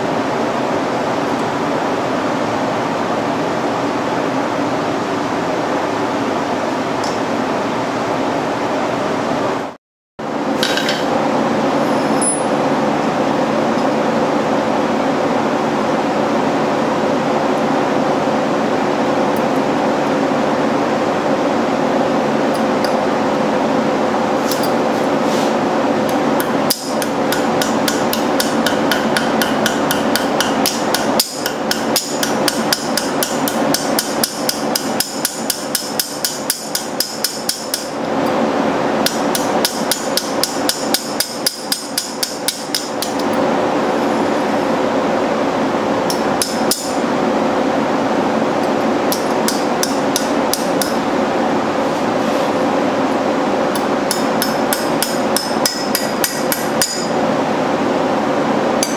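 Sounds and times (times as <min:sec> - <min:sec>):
steady hum: 0:00.0 - 0:58.9
hammer tapping steel on anvil: 0:12.1 - 0:12.5, 0:26.1 - 0:38.0, 0:39.0 - 0:43.4, 0:46.1 - 0:47.0, 0:49.1 - 0:51.0, 0:53.8 - 0:57.2.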